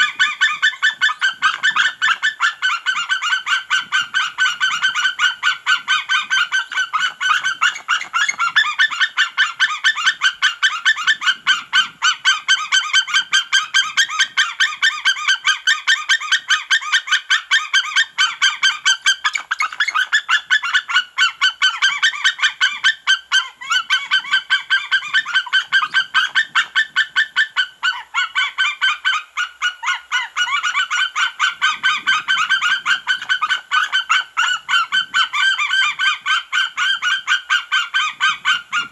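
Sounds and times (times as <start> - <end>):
eagles yelping calls: 0.0 - 38.9.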